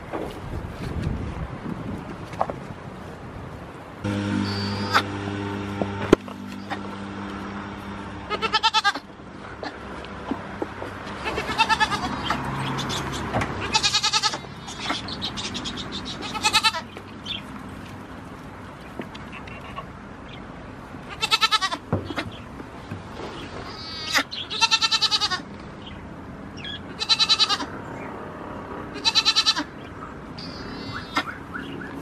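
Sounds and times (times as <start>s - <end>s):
goat kids bleating: 4.4s - 5.1s, 8.2s - 9.8s, 11.1s - 17.0s, 21.1s - 21.8s, 23.6s - 25.5s, 26.9s - 27.7s, 28.9s - 29.8s, 30.4s - 31.4s.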